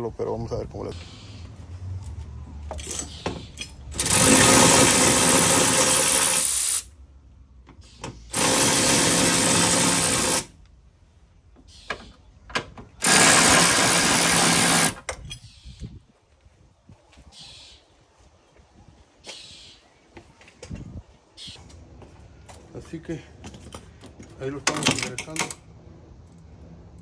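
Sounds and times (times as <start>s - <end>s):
power tool running: 3.9s - 6.9s, 8.3s - 10.6s, 13.0s - 15.1s.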